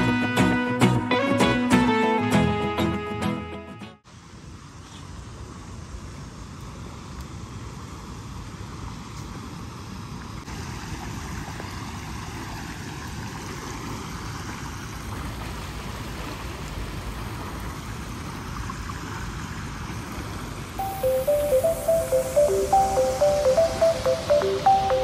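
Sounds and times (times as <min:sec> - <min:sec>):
music with plucked melody: 0:00.0 - 0:04.0, 0:20.8 - 0:25.0
water rushing and bubbling: 0:10.4 - 0:25.0.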